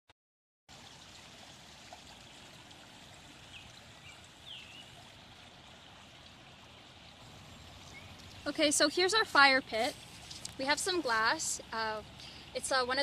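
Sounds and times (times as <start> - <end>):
faint steady hiss: 0.8 - 13.0
bird chirps: 7.8 - 8.4.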